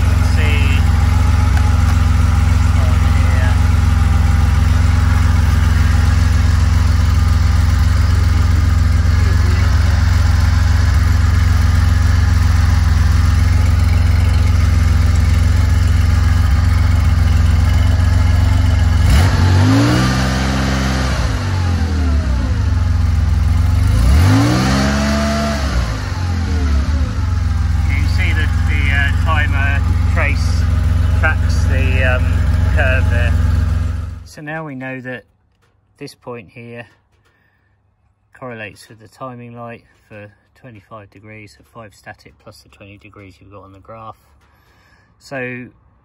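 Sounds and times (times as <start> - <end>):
car engine idling and revving: 0.0 - 34.4.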